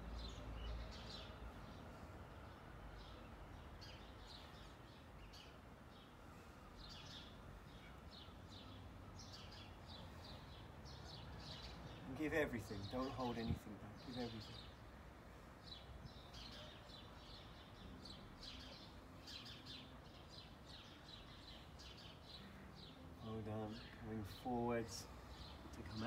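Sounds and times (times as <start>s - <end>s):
faint bird chirping: 0.0s - 26.0s
low steady background rumble: 0.0s - 26.0s.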